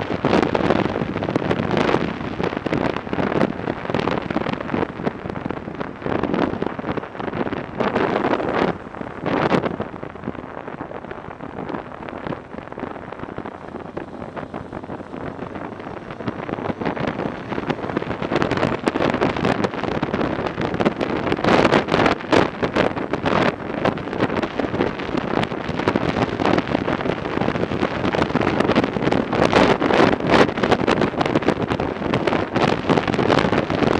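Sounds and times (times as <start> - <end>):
motorcycle engine running: 0.0 - 33.7
wind buffeting microphone: 0.0 - 33.9.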